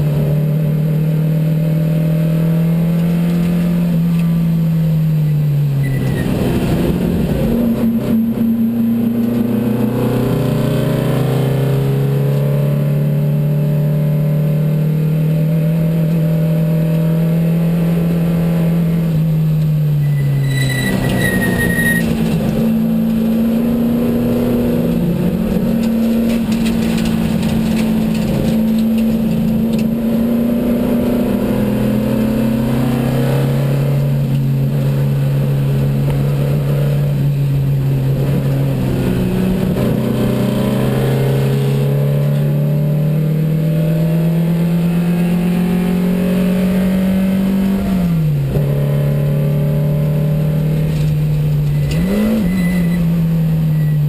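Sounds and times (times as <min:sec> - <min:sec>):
car engine under load: 0:00.0 - 0:54.0
high squeal: 0:05.8 - 0:06.4, 0:19.9 - 0:22.3, 0:51.5 - 0:54.0.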